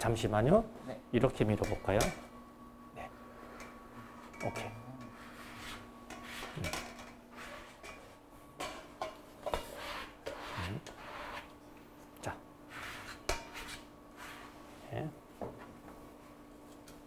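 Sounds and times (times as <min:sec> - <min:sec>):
utensils scraping cookware: 0:03.4 - 0:11.5, 0:12.7 - 0:14.6.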